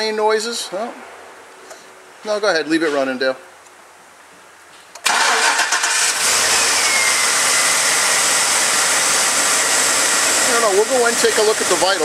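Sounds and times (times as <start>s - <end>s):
steady high engine whine: 5.0s - 12.0s
truck engine starting and running: 5.0s - 12.0s.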